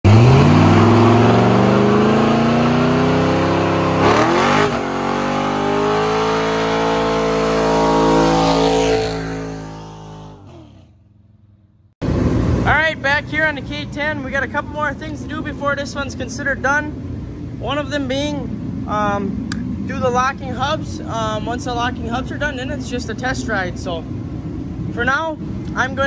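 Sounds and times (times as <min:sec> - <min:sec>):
truck engine revving: 0:00.0 - 0:13.0.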